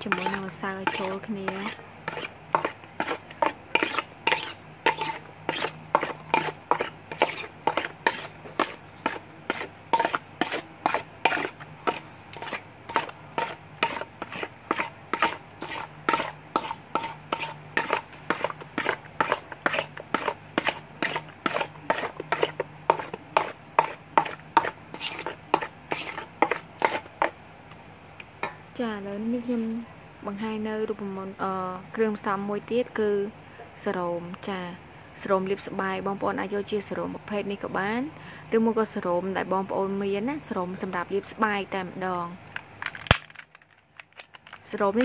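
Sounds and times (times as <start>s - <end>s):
utensil scraping cream in metal basin: 0.0s - 27.4s.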